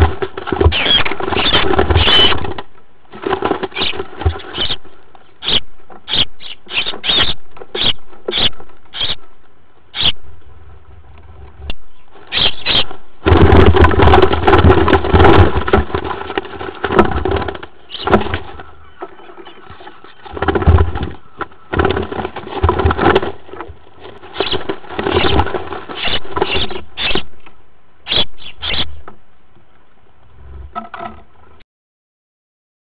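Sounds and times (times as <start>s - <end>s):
sparrows chirping: 28.1s - 29.0s.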